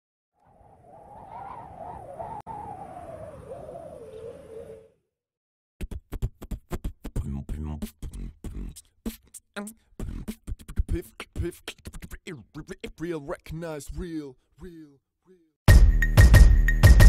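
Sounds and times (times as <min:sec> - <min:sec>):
beatboxing: 0:05.8 - 0:14.2.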